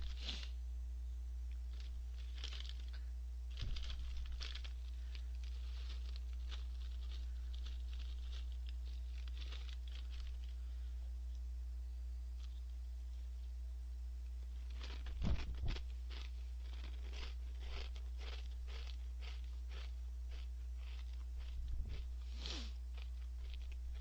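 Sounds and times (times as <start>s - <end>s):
plastic bag crinkling: 1.6s - 10.7s, 14.5s - 24.0s.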